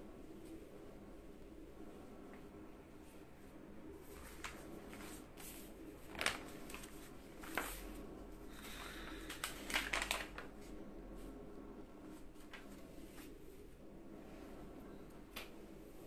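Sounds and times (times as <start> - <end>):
faint low hum: 0.0 - 16.0
paper rustling: 4.0 - 8.0, 8.7 - 10.7.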